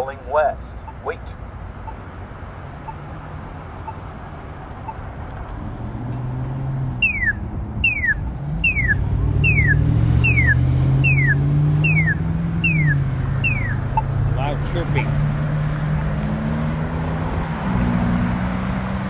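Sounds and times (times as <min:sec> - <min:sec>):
traffic: 0:00.0 - 0:19.0
vehicle engine: 0:00.0 - 0:19.0
falling walk signal chirp: 0:06.9 - 0:14.1.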